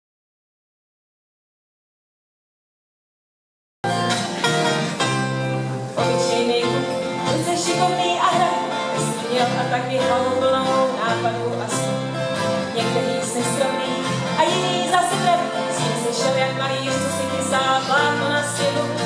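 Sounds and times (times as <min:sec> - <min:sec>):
bass guitar line: 0:03.8 - 0:19.0
guitars strumming: 0:03.8 - 0:19.0
woman singing: 0:06.0 - 0:19.0.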